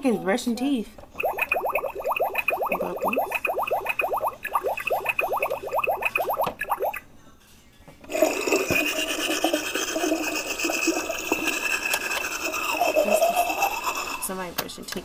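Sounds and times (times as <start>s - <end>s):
steady high electronic tone: 1.2s - 7.0s
toy teeth-brushing sound effect: 1.2s - 7.0s, 8.4s - 14.3s.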